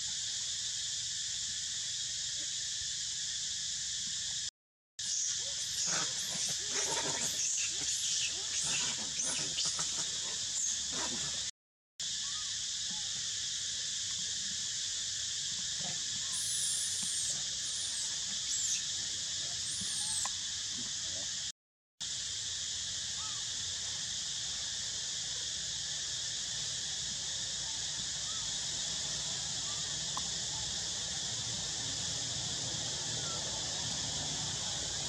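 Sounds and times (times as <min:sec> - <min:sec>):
forest insects droning: 0:00.0 - 0:35.0
thin high squeaky calls: 0:05.1 - 0:11.0, 0:16.3 - 0:18.9, 0:19.6 - 0:20.3.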